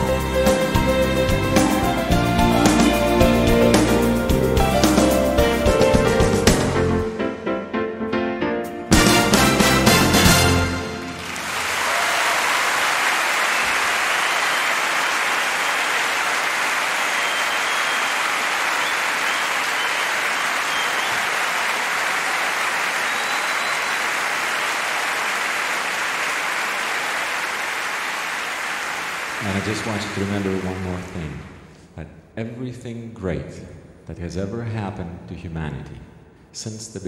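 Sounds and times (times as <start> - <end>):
audience applauding: 9.0 - 31.6.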